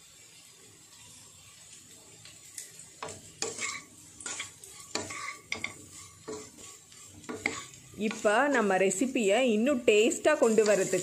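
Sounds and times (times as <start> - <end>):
faint sizzle: 0.0 - 11.0
wooden spatula scraping a pan: 3.0 - 9.2, 10.1 - 11.0.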